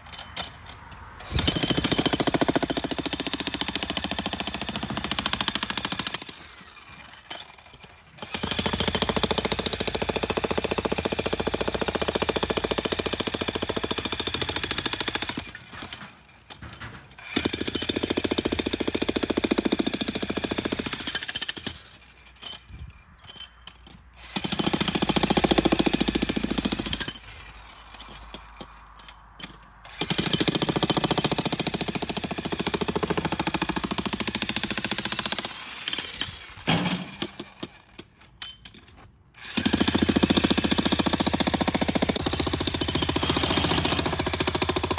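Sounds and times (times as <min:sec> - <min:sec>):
breaker hammer pounding concrete: 0:39.6 - 0:44.9.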